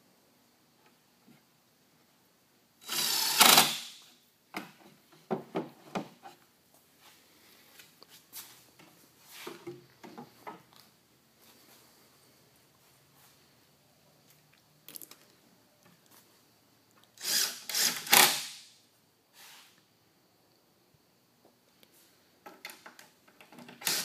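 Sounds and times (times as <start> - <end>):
cordless drill driving screw: 2.8 - 4.0, 17.2 - 18.5
wooden knocks and taps: 4.6 - 6.2.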